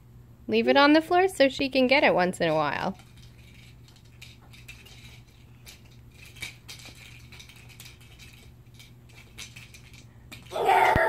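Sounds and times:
cat toy clicking and rattling: 0:02.4 - 0:10.6.

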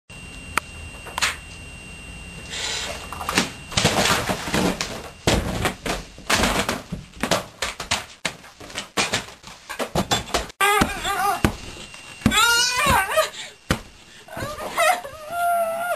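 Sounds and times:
books and papers thudding: 0:03.4 - 0:12.5.

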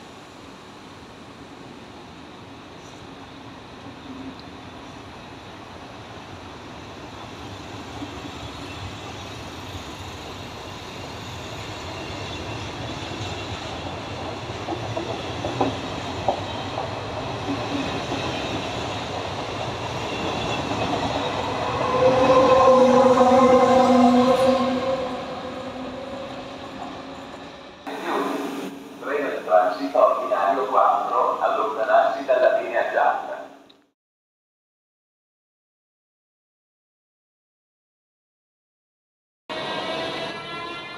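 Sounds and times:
electric locomotive hum: 0:00.1 - 0:33.3
train rail rumble: 0:08.3 - 0:32.5.

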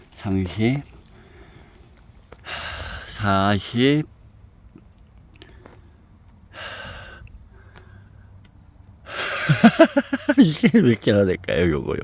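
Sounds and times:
man exhaling breathily: 0:02.4 - 0:03.1, 0:06.5 - 0:08.1.

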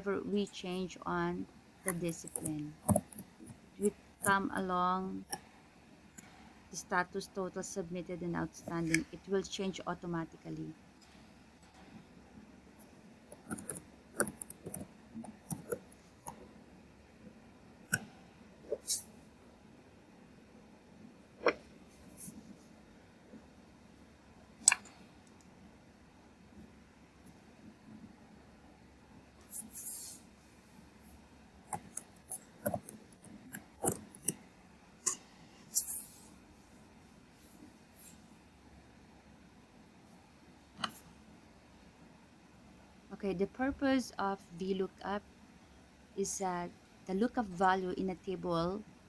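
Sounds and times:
keyboard typing: 0:13.3 - 0:16.4, 0:31.7 - 0:34.4.

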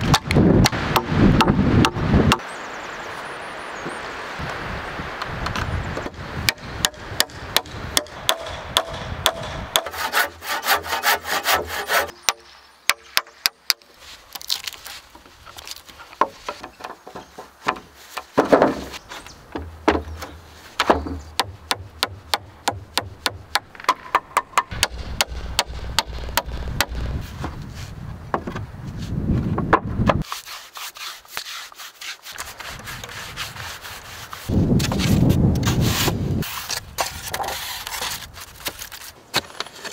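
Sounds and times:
woodworking noise: 0:05.5 - 0:12.4, 0:13.1 - 0:39.9
hammer striking nails into wood: 0:06.5 - 0:09.9.

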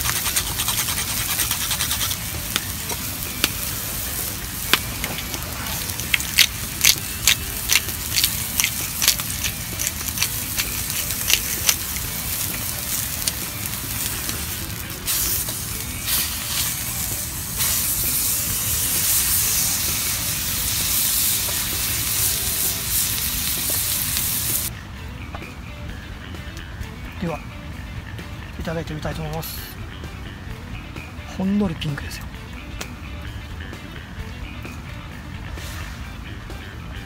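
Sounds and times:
steaks sizzling in a frying pan: 0:01.2 - 0:24.7
fat spattering pops: 0:04.6 - 0:12.0.

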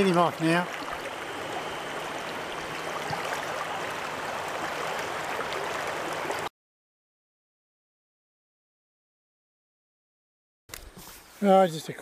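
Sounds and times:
river water running over stones: 0:00.0 - 0:06.5.

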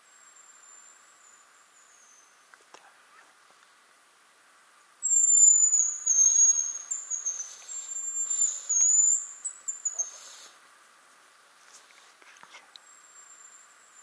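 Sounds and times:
high thin whistled bird call: 0:05.0 - 0:10.6.

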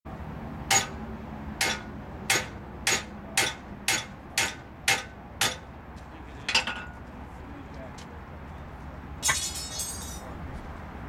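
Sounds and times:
hammer striking iron: 0:00.7 - 0:01.0, 0:01.6 - 0:05.7, 0:09.2 - 0:10.2.

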